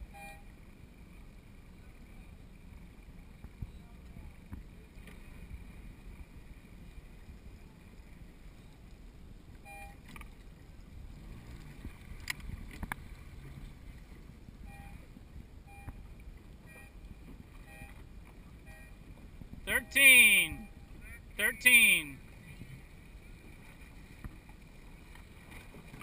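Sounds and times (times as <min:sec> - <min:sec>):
wind rumble on microphone: 0:01.2 - 0:19.7, 0:20.6 - 0:21.4, 0:22.2 - 0:26.0
water lapping against boat hull: 0:03.3 - 0:19.6, 0:22.2 - 0:26.0.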